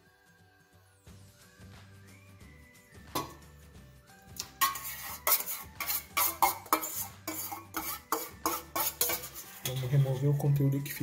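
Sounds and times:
metal spoon scraping a bowl: 4.4s - 10.6s.

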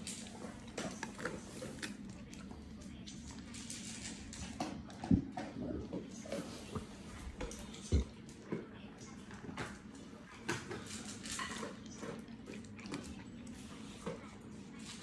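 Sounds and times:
dogs crunching dry kibble: 0.0s - 15.0s
food clinking against metal bowls: 10.5s - 12.4s.

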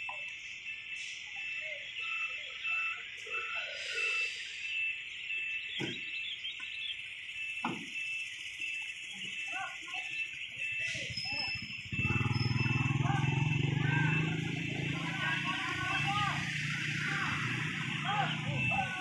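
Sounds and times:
faint distant calls: 0.0s - 19.0s
insects droning: 0.0s - 19.0s.

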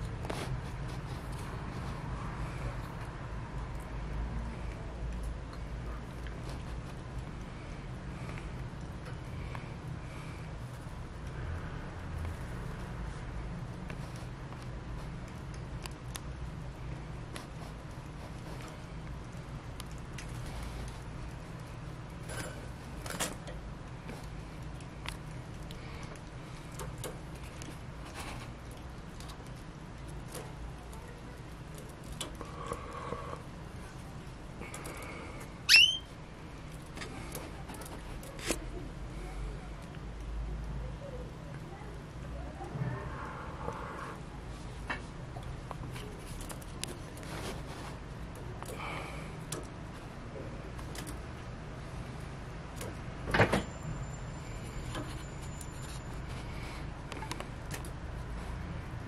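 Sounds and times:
low background hum: 0.0s - 59.0s
canary chirp: 35.6s - 36.1s.

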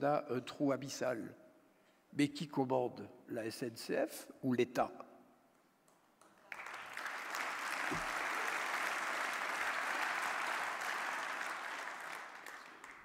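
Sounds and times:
audience applauding: 6.4s - 13.0s.

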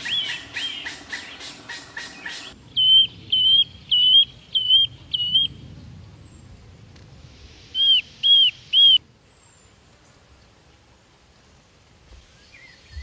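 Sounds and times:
bird whistling calls: 0.0s - 5.6s, 7.8s - 9.0s.

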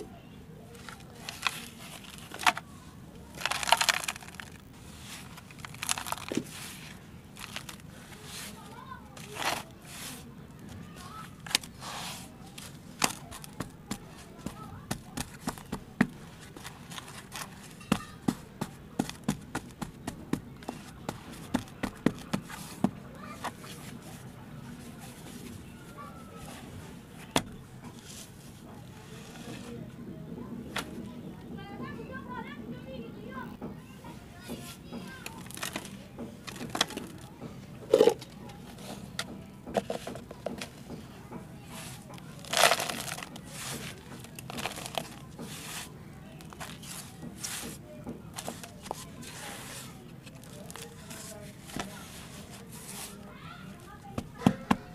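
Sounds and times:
hands patting damp soil: 3.3s - 10.3s, 10.9s - 24.1s, 41.7s - 53.3s.

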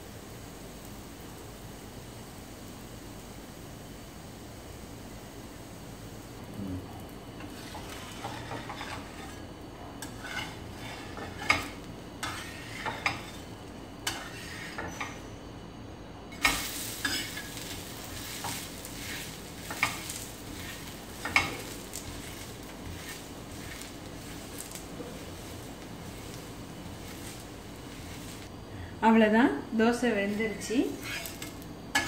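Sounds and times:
oil sizzling on hot pan: 0.0s - 28.9s, 30.1s - 32.0s
spatula scraping and tapping pan: 7.4s - 15.2s, 16.3s - 28.4s, 30.9s - 32.0s.

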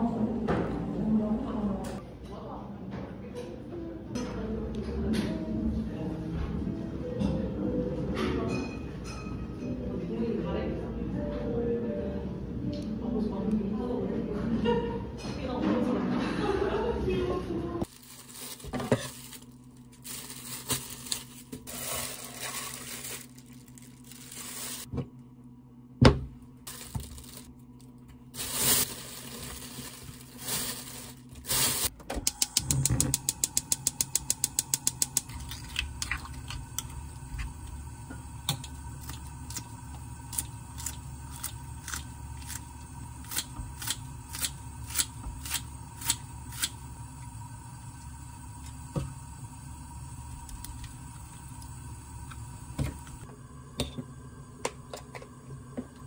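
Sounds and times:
gas burner low rumble: 10.2s - 56.0s
plastic bag rustling: 17.8s - 24.9s, 26.7s - 31.9s
gas stove igniter clicking: 32.2s - 35.3s.

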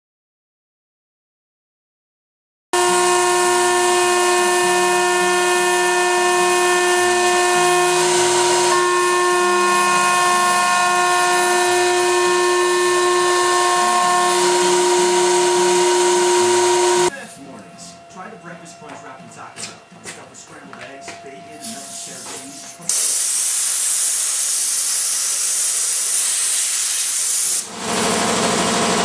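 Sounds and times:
router spindle whining: 2.8s - 17.1s
motor tones shifting pitch: 2.8s - 19.2s
end mill cutting metal hiss: 21.5s - 29.0s.

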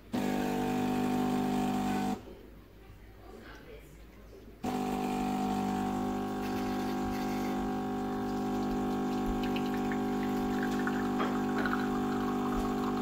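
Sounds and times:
espresso machine pump humming: 0.1s - 2.2s, 4.6s - 13.0s
coffee running into glass cup: 4.7s - 13.0s.

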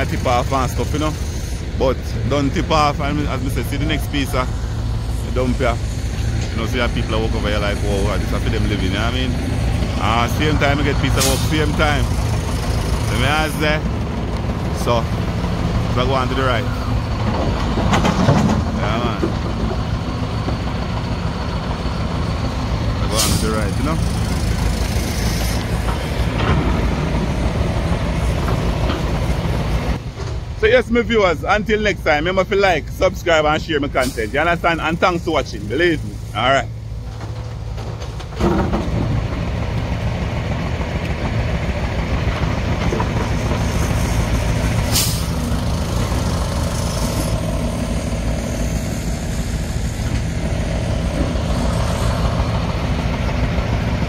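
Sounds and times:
vehicle engine and road rumble: 0.0s - 54.0s
short air hiss: 43.7s - 45.4s.

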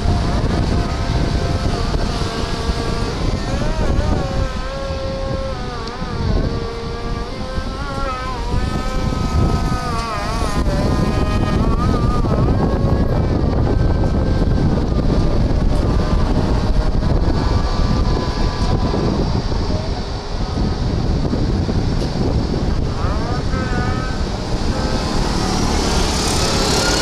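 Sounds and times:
jet engines roaring: 0.0s - 27.0s.

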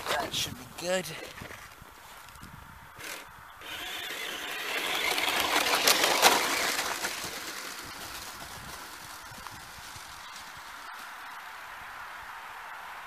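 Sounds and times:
remote-control car motor running: 3.0s - 8.2s.

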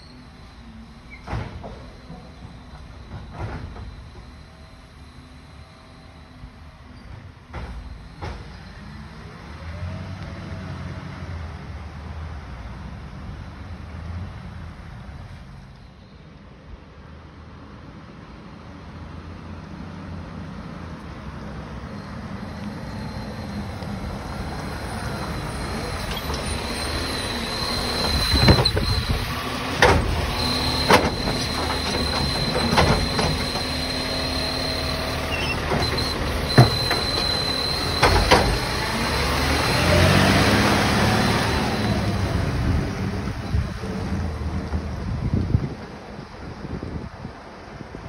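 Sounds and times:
garbage truck diesel engine: 0.0s - 15.6s, 19.4s - 48.0s
bin clunking and banging: 28.3s - 33.8s, 35.5s - 38.7s.

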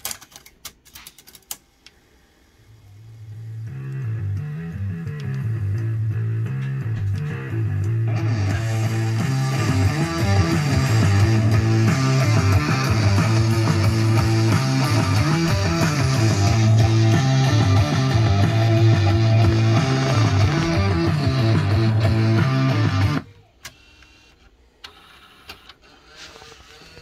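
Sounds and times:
rock music from car stereo: 3.6s - 23.2s.

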